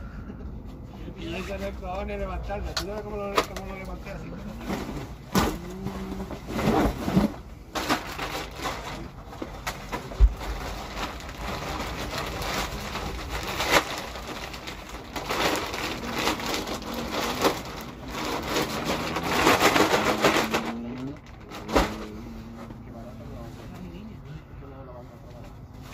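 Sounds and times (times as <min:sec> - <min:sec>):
plastic bag crinkling: 0:06.8 - 0:22.2.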